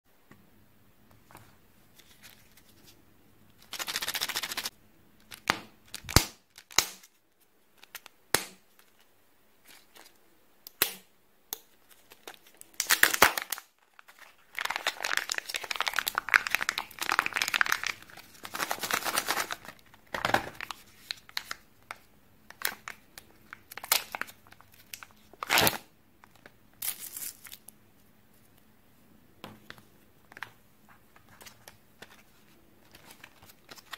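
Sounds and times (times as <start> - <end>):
plastic packaging crinkling and tearing: 11.9 - 22.0, 22.6 - 27.7, 31.2 - 33.9.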